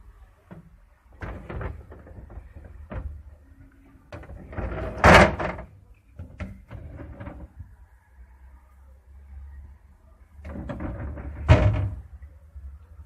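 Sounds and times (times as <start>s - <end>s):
drawer sliding: 4.2s - 5.7s, 6.4s - 7.5s
plastic drawer knocks and clicks: 10.5s - 12.0s.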